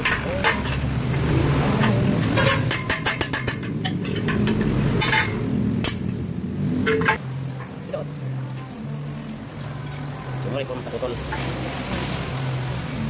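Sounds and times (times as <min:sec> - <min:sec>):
steel tubes knocking and scraping: 0:00.0 - 0:07.8.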